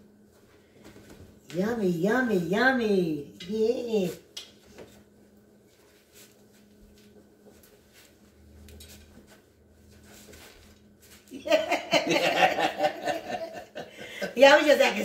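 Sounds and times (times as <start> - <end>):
faint steady hum: 0.0 - 15.0
man and woman laughing: 11.4 - 14.6.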